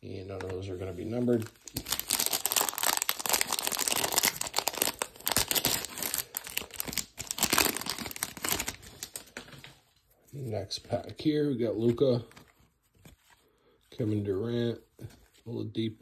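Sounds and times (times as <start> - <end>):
foil wrapper crinkling and tearing: 1.2 - 9.4.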